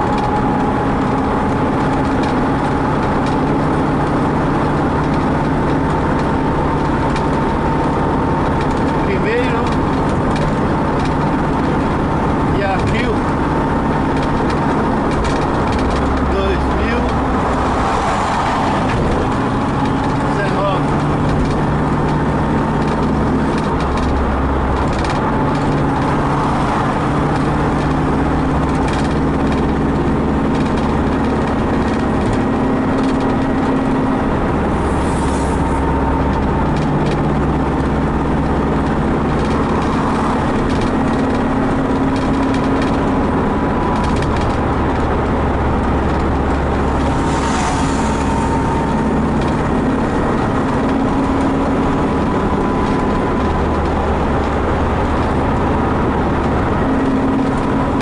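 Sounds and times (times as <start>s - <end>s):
vehicle engine running: 0.0s - 58.0s
wind and road noise: 0.0s - 58.0s
brief hissing swells: 34.8s - 35.8s, 47.1s - 48.8s.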